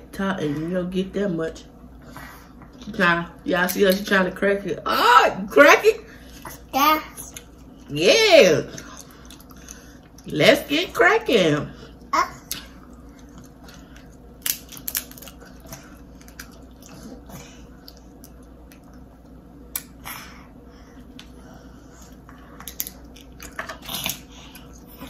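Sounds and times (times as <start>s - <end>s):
chewing: 8.7s - 10.3s, 12.4s - 20.0s
crab shells cracking: 13.3s - 16.9s, 22.6s - 24.3s.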